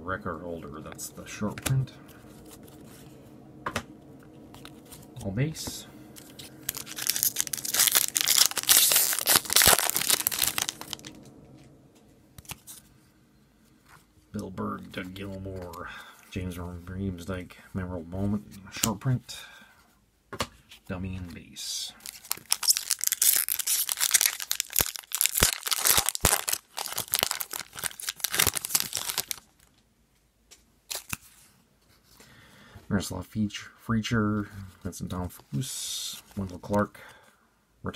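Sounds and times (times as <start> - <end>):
foil pack crinkling: 6.1 - 11.2, 22.0 - 29.8.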